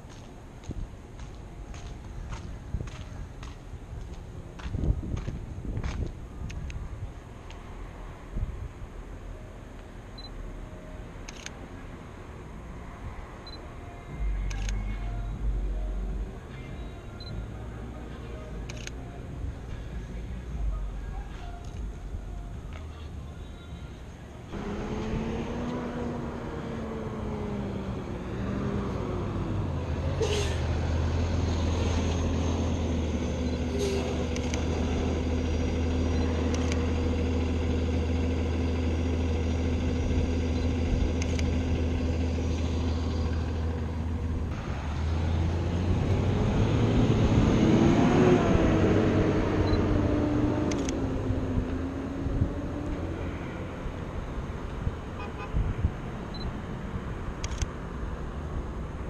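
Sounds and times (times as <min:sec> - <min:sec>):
truck engine running: 0:13.4 - 0:55.5
vehicle passing by: 0:24.5 - 0:59.0
camera shutter clicks: 0:34.3 - 0:34.6, 0:36.5 - 0:36.8, 0:50.7 - 0:51.0.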